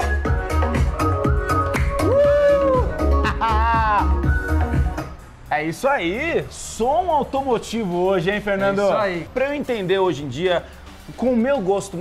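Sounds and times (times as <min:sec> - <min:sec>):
music with heavy bass beat: 0:00.0 - 0:05.4
high sliding melody line: 0:00.0 - 0:10.5.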